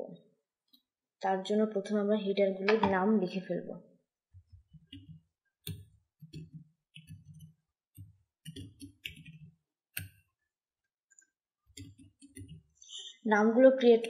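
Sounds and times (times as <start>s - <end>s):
keyboard typing: 4.5s - 10.2s, 11.7s - 12.7s.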